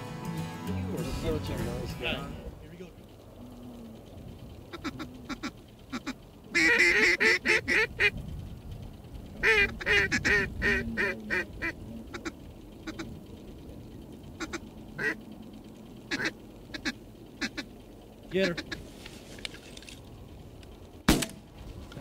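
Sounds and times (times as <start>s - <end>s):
duck call quacks: 4.7s - 8.2s, 9.4s - 13.1s, 14.4s - 15.2s, 16.1s - 17.7s, 18.4s - 18.9s.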